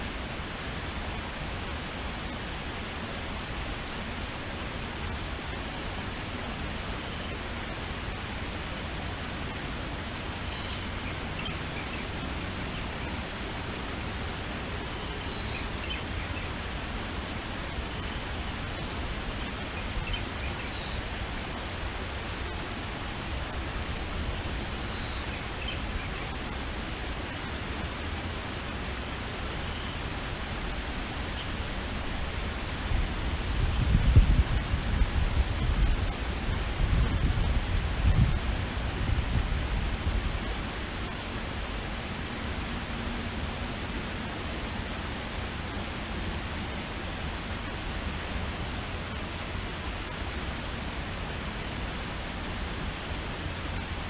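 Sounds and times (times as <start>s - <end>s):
small bird calling: 10.1s - 13.2s, 15.0s - 16.6s, 17.9s - 21.1s, 24.6s - 26.4s
steady rushing noise: 10.8s - 54.0s.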